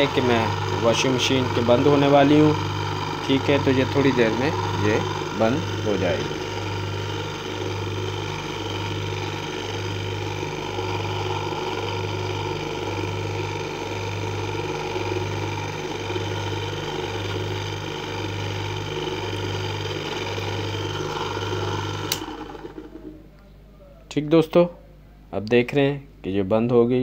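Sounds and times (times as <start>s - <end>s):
electric motor humming and whirring: 0.0s - 23.3s.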